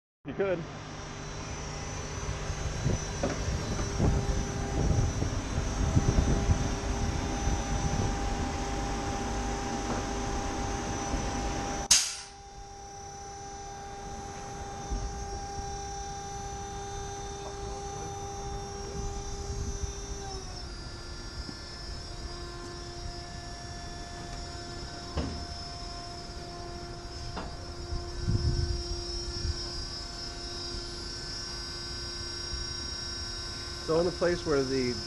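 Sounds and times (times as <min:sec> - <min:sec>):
electric pumps whine: 0:00.3 - 0:35.0
wind rumble: 0:02.3 - 0:11.4
sharp loud bang: 0:11.9 - 0:12.4.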